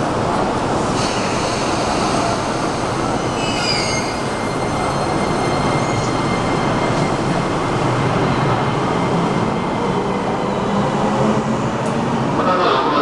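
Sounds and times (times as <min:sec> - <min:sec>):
electric train rolling past: 0:00.0 - 0:13.0.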